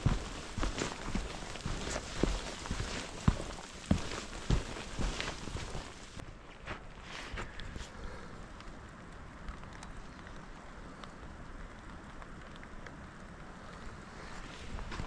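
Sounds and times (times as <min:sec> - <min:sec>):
raindrops ticking: 0:00.0 - 0:06.2
steady rain hissing: 0:00.0 - 0:15.0.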